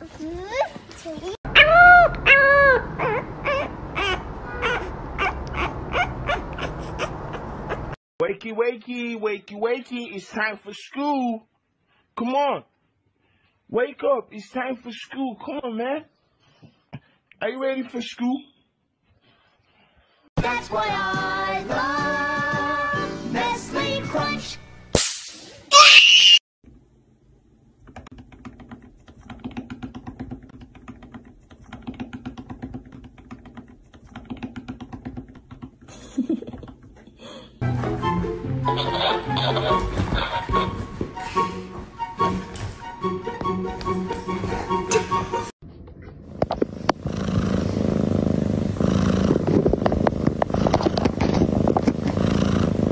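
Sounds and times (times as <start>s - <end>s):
cat purring: 46.5s - 52.9s.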